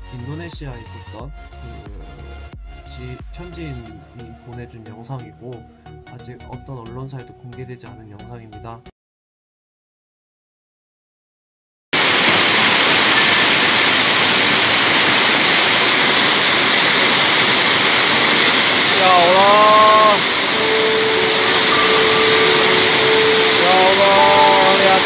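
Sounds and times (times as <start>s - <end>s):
floodwater rushing: 12.0s - 25.0s.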